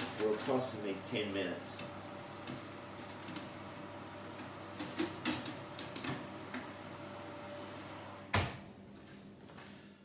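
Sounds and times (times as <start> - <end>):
oven door thud: 8.3 - 8.7.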